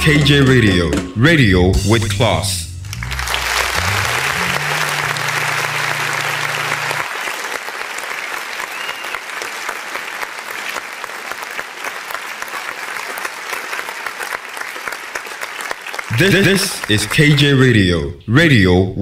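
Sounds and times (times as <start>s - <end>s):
low held music notes: 0.0s - 7.0s
crowd applauding: 2.8s - 17.2s.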